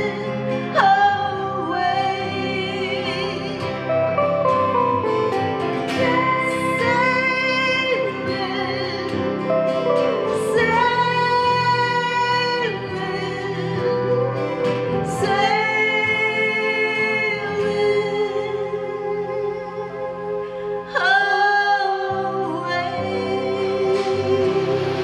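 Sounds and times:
acoustic guitar: 0.0s - 25.0s
woman singing: 0.0s - 25.0s.

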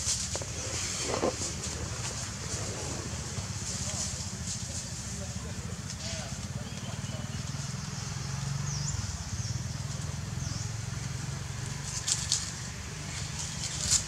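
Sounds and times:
sharp crackles: 0.0s - 5.2s
low pulsing motor rumble: 0.0s - 14.0s.

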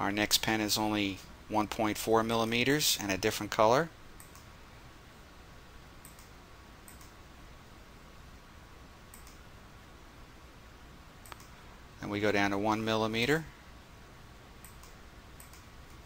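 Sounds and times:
low steady hiss: 0.0s - 16.0s
computer mouse clicks: 4.2s - 4.5s, 6.0s - 7.2s, 9.1s - 9.4s, 11.2s - 11.6s, 14.6s - 16.0s.

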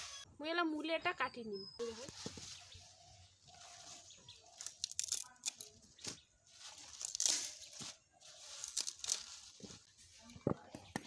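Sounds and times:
leaves and stalks rustling: 1.8s - 10.7s
stalks snapping: 4.6s - 5.8s, 6.9s - 7.7s, 8.6s - 9.3s.

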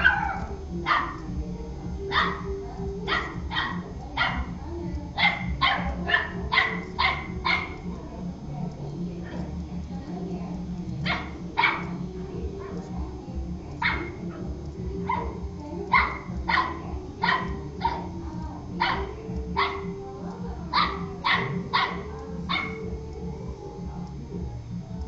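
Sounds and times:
puppy barking: 0.0s - 1.4s, 2.0s - 4.6s, 5.2s - 7.9s, 11.0s - 12.0s, 13.8s - 20.0s, 20.7s - 23.0s.

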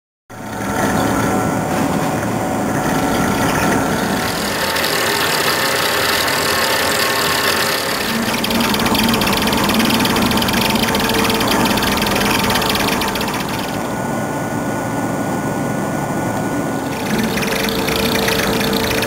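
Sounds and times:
lathe running: 0.3s - 19.0s
tool cutting steel: 0.6s - 14.0s, 16.8s - 19.0s
held tones: 2.2s - 14.0s, 16.8s - 19.0s.

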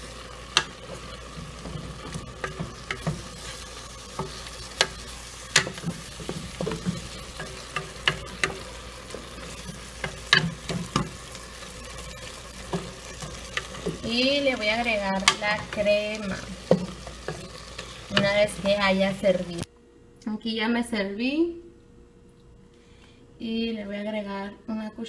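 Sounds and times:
wooden spoon scraping a pot: 0.0s - 19.2s
vegetables sizzling: 0.0s - 19.7s.

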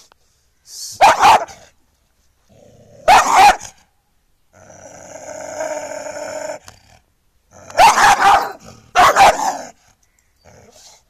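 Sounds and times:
dog barking loudly: 1.0s - 1.6s, 3.0s - 3.8s, 7.7s - 9.7s.

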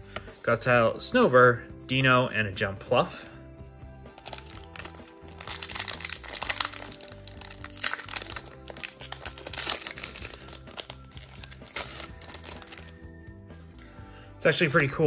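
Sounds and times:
background music: 0.0s - 15.0s
foil wrapper crinkling and tearing: 4.2s - 13.0s.

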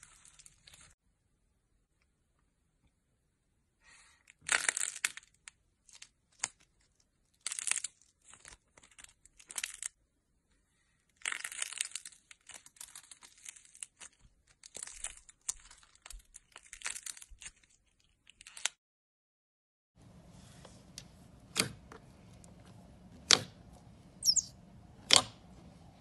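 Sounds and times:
slime crackling and crinkling: 0.0s - 1.0s, 4.4s - 10.0s, 11.1s - 18.7s.

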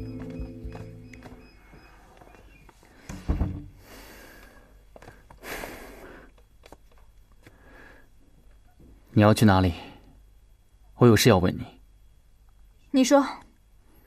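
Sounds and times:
quiet footsteps on hard floor: 0.0s - 3.6s
heavy door thudding shut: 3.1s - 3.8s.

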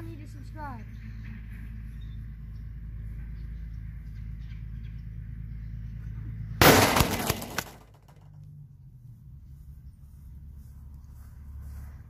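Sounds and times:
football crashing into phone: 6.6s - 7.9s.

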